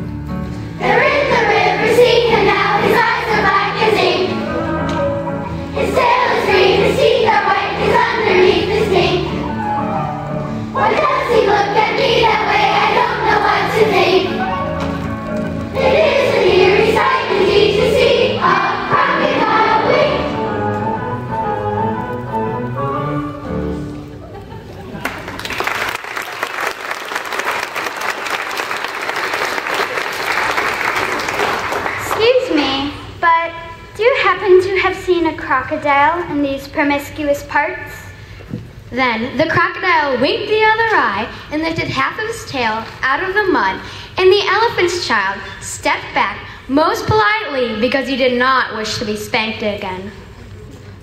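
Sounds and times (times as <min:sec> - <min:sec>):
backing accompaniment low notes: 0:00.0 - 0:25.0
children's choir singing: 0:00.8 - 0:23.5
large audience applauding: 0:24.8 - 0:32.2.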